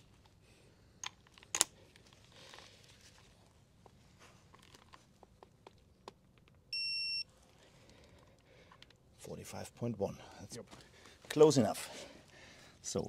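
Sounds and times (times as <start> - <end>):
torque wrench high beep: 6.8 - 7.2.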